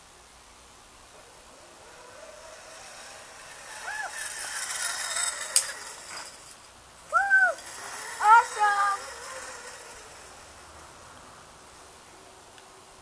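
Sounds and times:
zip-line trolley whirring: 0:01.2 - 0:12.2
child whooping: 0:07.1 - 0:09.2.

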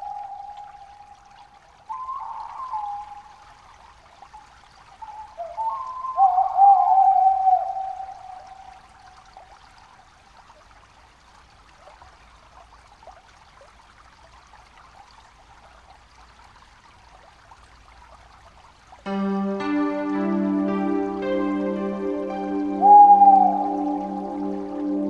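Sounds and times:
faint water trickling: 0:00.0 - 0:25.0
music with held notes: 0:19.1 - 0:25.0.

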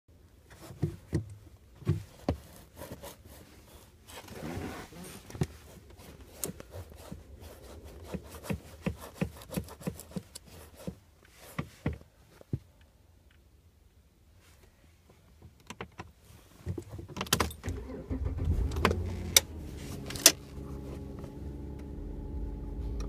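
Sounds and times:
rubbing: 0:02.0 - 0:11.9
rustling scrape: 0:02.1 - 0:11.8, 0:18.4 - 0:21.3.

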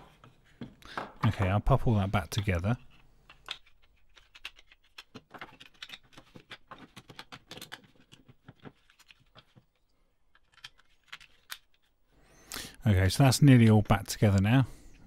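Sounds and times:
plastic parts clicking and tapping: 0:00.0 - 0:12.0.

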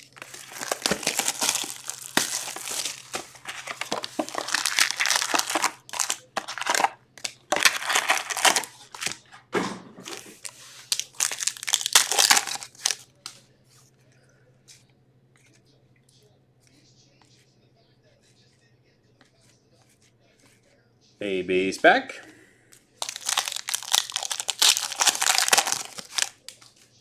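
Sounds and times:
foil wrappers crinkling and tearing: 0:00.0 - 0:09.3, 0:10.1 - 0:13.3, 0:23.0 - 0:26.8.

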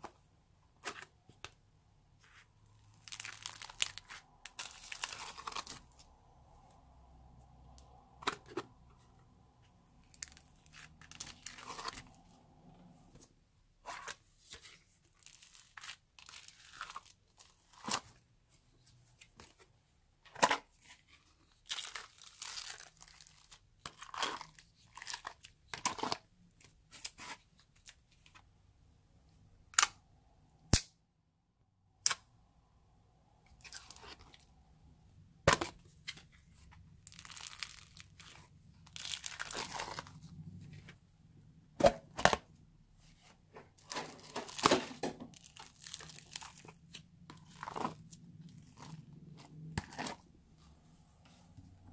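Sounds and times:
slime crunching and crackling: 0:02.9 - 0:06.0, 0:10.0 - 0:12.3, 0:21.6 - 0:26.3, 0:37.0 - 0:40.4, 0:43.8 - 0:50.3.

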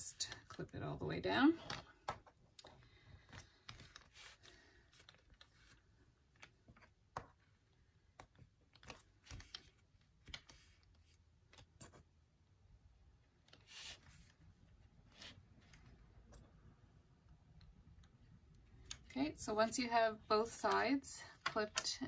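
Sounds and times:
soft handling of strap: 0:01.8 - 0:12.2.

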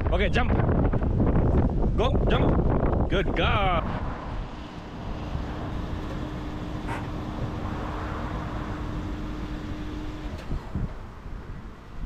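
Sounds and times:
car moving with low rumble: 0:00.1 - 0:12.0.

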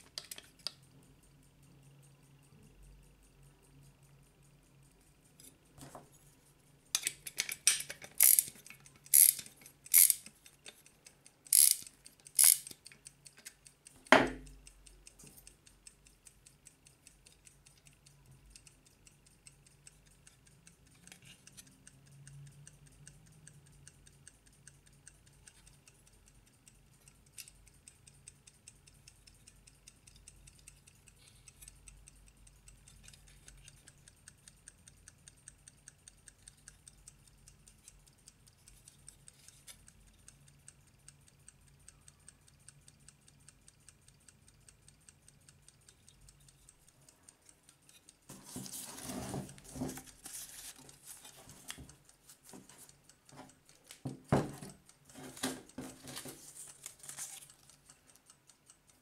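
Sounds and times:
winding key ratchet clicks: 0:00.0 - 0:05.8, 0:06.9 - 0:59.0
clock ticking rapidly: 0:06.7 - 0:59.0.

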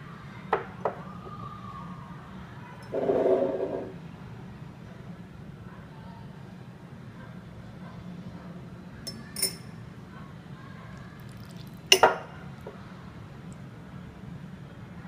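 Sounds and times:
cutlery clinking on ceramic bowls: 0:09.1 - 0:09.7, 0:11.9 - 0:12.3.

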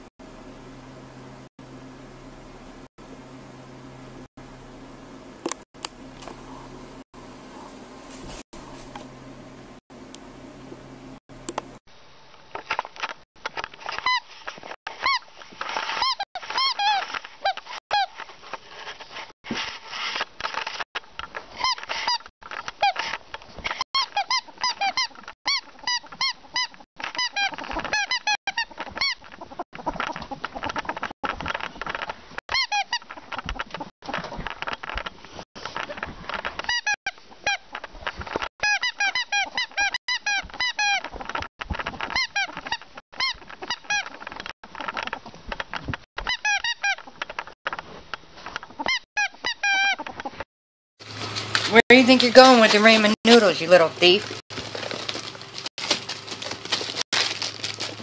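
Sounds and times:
ferret squeaky clucking calls: 0:48.7 - 0:50.4.

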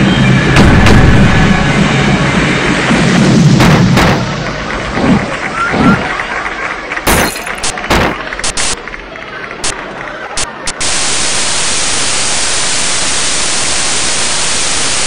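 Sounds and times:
sharp crashes and thuds: 0:00.5 - 0:01.9, 0:02.9 - 0:05.2, 0:07.1 - 0:08.3
instruments being smashed: 0:07.1 - 0:08.2.

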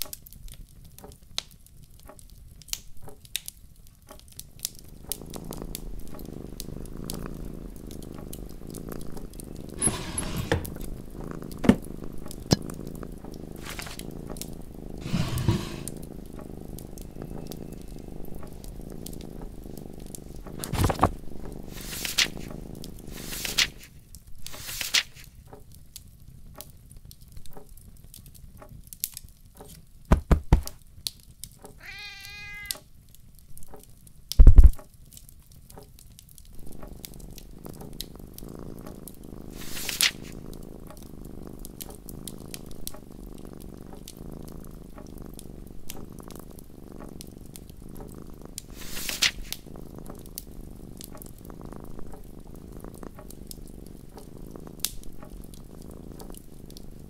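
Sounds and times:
wood fire crackling and popping: 0:00.0 - 0:10.0, 0:10.7 - 0:15.1, 0:15.7 - 0:57.0
cat purring: 0:03.0 - 0:29.8, 0:30.7 - 0:34.9, 0:35.6 - 0:57.0
brief rustles: 0:13.6 - 0:14.0
cat meowing: 0:31.8 - 0:32.8.

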